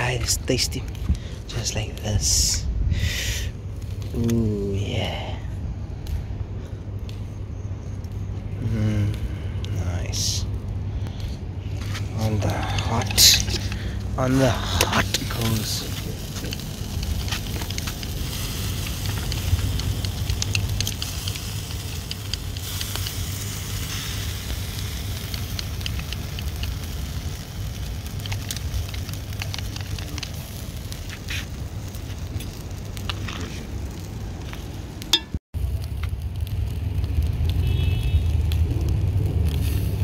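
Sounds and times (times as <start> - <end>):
coals crackling: 0.0 - 40.0
steady low rumble: 0.0 - 40.0
fish sizzling on a grill: 8.6 - 10.4, 11.1 - 34.8, 35.6 - 40.0.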